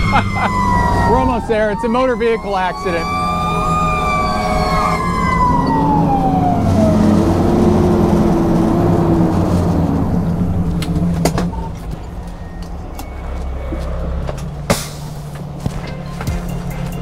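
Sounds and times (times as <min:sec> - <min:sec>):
fire engine siren winding down: 0:00.0 - 0:11.0
truck engine rumble: 0:00.0 - 0:17.0.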